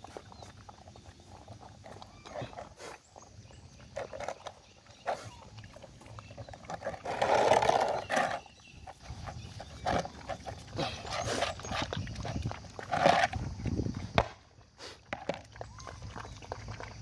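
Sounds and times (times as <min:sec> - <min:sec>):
puppies lapping and chewing: 0:00.0 - 0:17.0.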